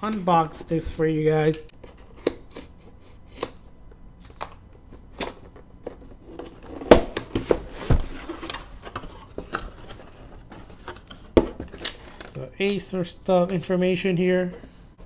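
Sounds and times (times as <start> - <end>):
cardboard and paper rustling: 7.3 - 12.4.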